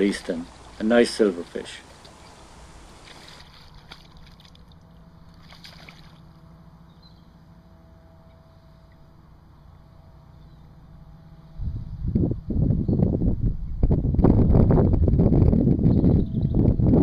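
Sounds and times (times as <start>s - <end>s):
river water rumbling: 0.0s - 11.5s.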